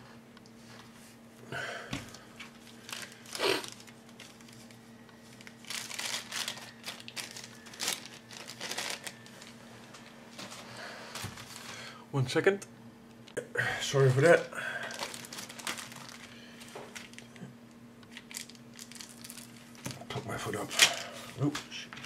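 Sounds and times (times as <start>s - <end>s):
plastic bag crinkling: 2.5s - 11.7s, 14.1s - 17.4s, 18.1s - 19.9s.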